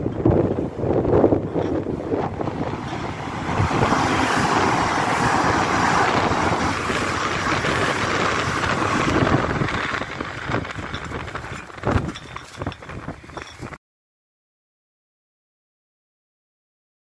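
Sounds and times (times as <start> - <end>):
wind buffeting microphone: 0.0 - 13.8
train wheels rushing on rail: 0.1 - 13.8.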